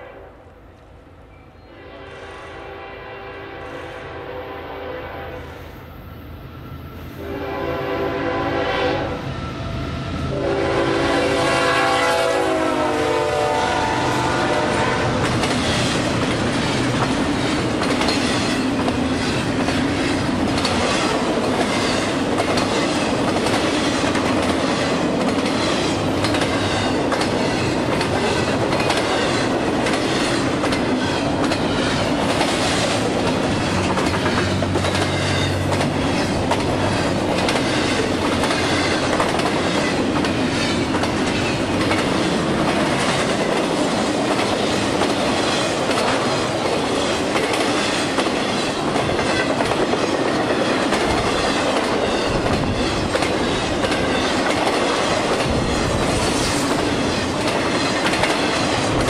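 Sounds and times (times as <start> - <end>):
train rumbling past: 0.0 - 59.0
locomotive horn blasts: 1.7 - 5.6, 7.2 - 9.3, 10.3 - 15.3
wheels clacking over rail joints: 15.2 - 59.0.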